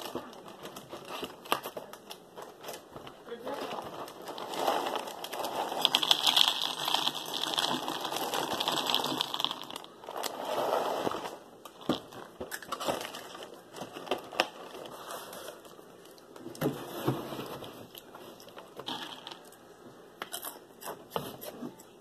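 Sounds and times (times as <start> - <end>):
plastic liner crinkling: 0.0 - 16.8
cereal box shaken: 3.4 - 11.4
cereal pouring into plastic bowl: 3.4 - 12.0, 18.8 - 19.4.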